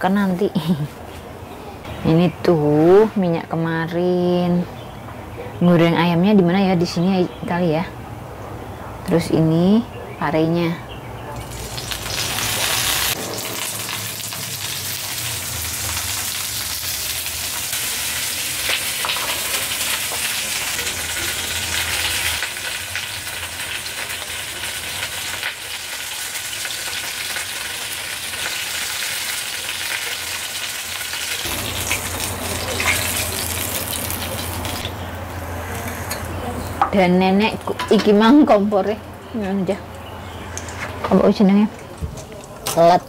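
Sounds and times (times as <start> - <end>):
chicken frying in hot oil: 11.4 - 34.9.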